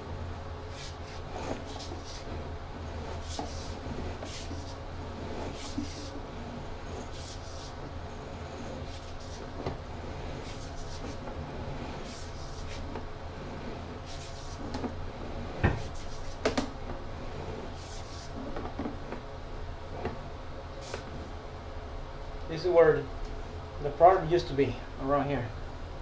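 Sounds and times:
steady low hum: 0:00.0 - 0:26.0
cable knocking and scraping in pipe: 0:08.5 - 0:17.6, 0:18.3 - 0:19.3.

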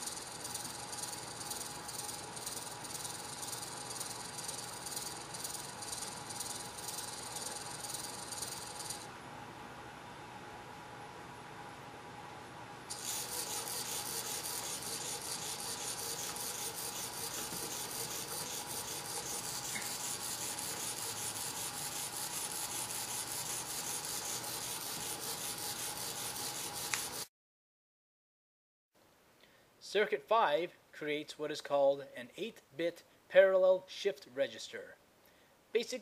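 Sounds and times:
servo motor chattering: 0:00.0 - 0:09.1, 0:12.9 - 0:27.2.

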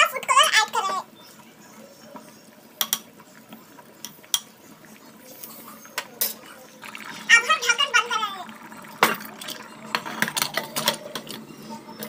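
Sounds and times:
rice boiling in water: 0:00.0 - 0:12.0
spoon clinking on pot: 0:02.8 - 0:03.1.

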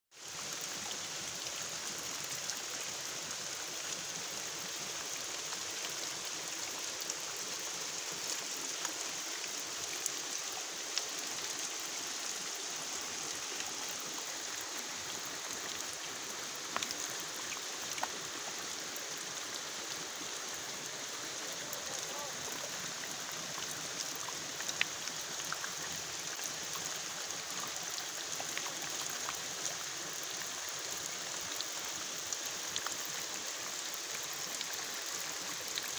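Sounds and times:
waterfall spray hissing: 0:05.6 - 0:29.7.

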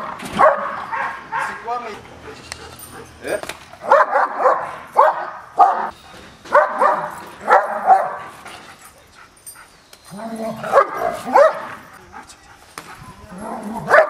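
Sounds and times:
dog barking: 0:00.0 - 0:01.7, 0:03.8 - 0:08.3, 0:10.6 - 0:11.9, 0:13.8 - 0:14.0.

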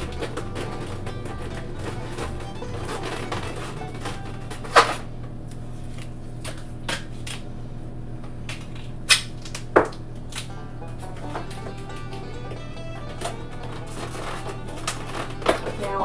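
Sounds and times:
duct tape ripping: 0:00.0 - 0:07.4, 0:08.6 - 0:10.6, 0:11.4 - 0:16.0
tape crackling: 0:00.0 - 0:07.6, 0:08.2 - 0:16.0
steady low hum: 0:00.0 - 0:16.0.

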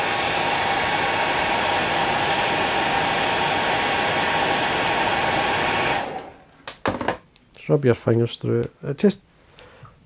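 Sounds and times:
hair dryer running: 0:00.0 - 0:06.4.

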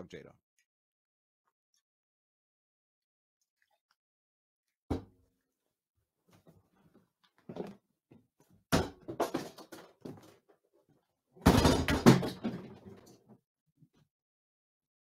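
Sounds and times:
plastic mannequin knocks and clatters: 0:07.4 - 0:10.5, 0:11.4 - 0:13.4
crashing thuds: 0:11.4 - 0:12.9.

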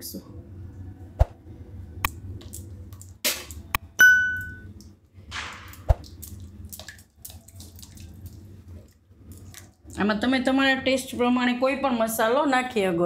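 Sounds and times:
low steady hum: 0:00.0 - 0:13.0
bright ringing ding: 0:04.0 - 0:04.7.

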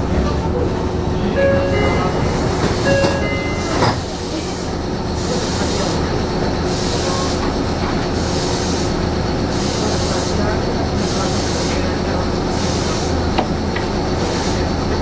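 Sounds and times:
train low hum: 0:00.0 - 0:15.0
short high tones: 0:01.2 - 0:04.3.

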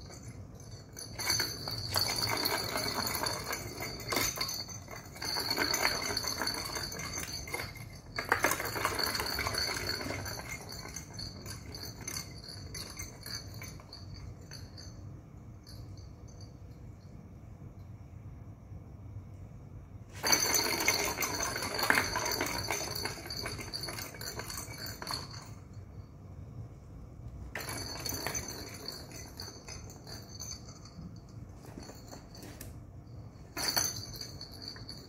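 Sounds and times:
plastic balls rattling around track: 0:01.0 - 0:13.9, 0:20.2 - 0:25.6.

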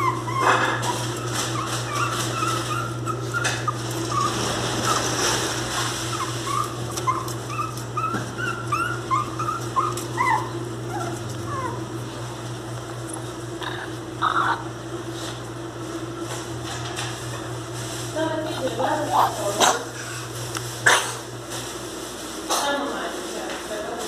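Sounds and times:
puppy whimpering: 0:00.0 - 0:12.2, 0:13.6 - 0:14.8, 0:18.8 - 0:20.2
steady low hum: 0:00.0 - 0:22.6.

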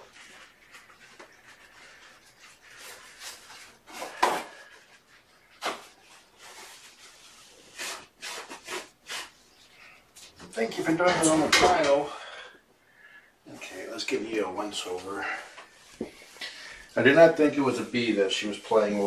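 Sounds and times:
rustling of objects handled: 0:00.0 - 0:12.1.

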